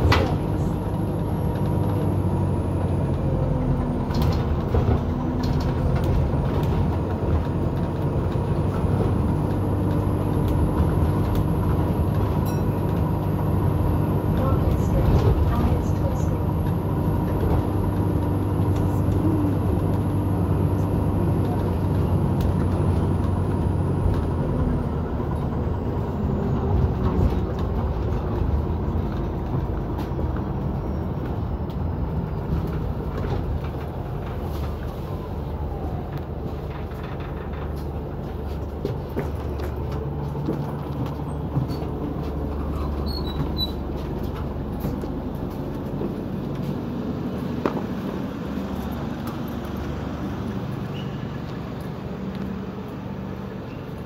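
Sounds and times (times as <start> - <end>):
bus engine rumble: 0.0 - 54.0
bodywork rattles and clicks: 36.0 - 46.9.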